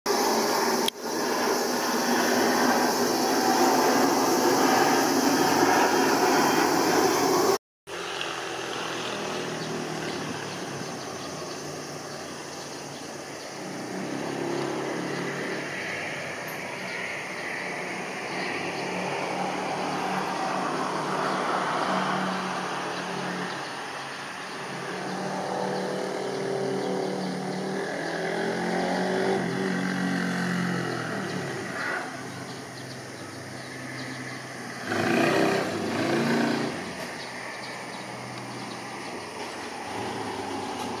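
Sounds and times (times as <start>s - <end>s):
jet engines rumbling: 0.1s - 7.6s
airliner jet engines droning: 0.1s - 28.5s.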